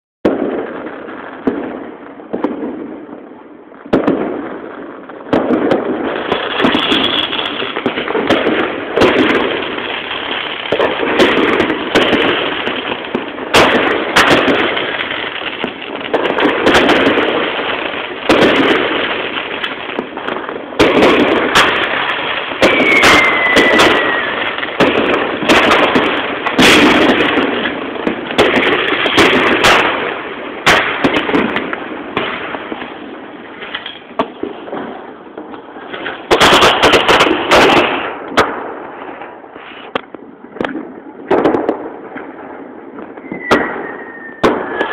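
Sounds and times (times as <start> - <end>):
fireworks bangs: 0.2 - 44.9
fireworks crackling: 0.2 - 44.9
falling whistle: 22.6 - 24.4, 43.2 - 44.9.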